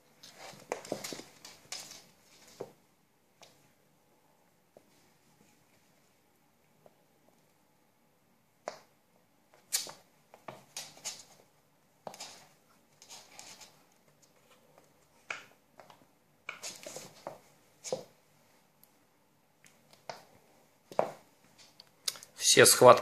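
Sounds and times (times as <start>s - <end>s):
cat paws scrabbling on wooden floor: 0.1s - 2.8s, 15.8s - 18.2s.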